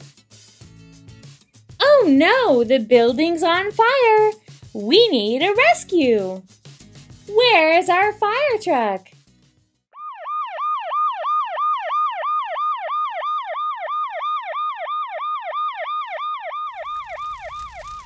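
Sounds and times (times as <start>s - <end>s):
fire truck siren yelping: 10.0s - 18.0s.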